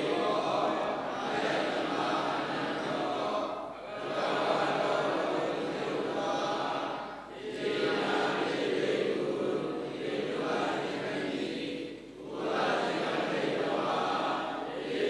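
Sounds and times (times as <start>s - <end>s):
scripture chanting: 0.0s - 15.0s.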